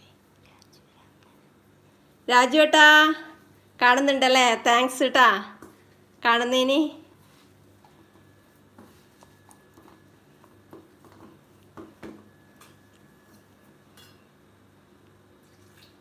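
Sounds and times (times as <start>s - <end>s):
dough knocking and scraping in bowl: 8.2s - 12.8s.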